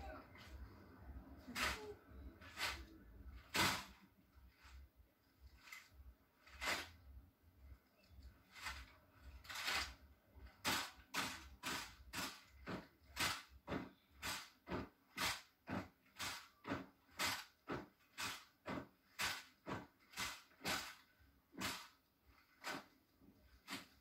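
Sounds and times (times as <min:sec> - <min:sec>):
boots marching on cobblestones: 0:10.6 - 0:20.9.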